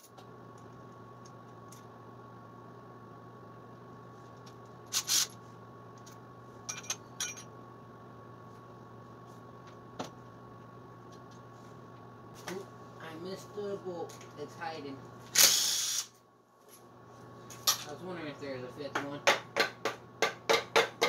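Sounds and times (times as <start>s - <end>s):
faint steady hum: 0.0s - 21.0s
metal tools clinking and clattering: 6.7s - 7.5s.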